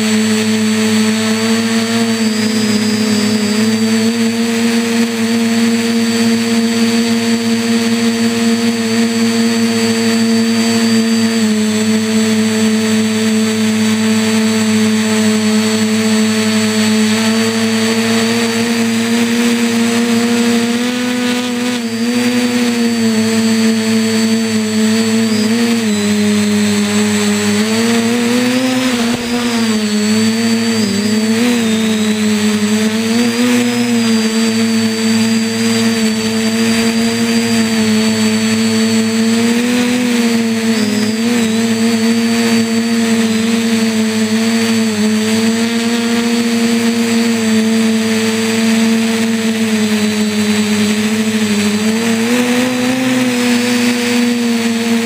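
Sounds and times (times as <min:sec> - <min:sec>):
quadcopter propellers humming: 0:00.0 - 0:55.0.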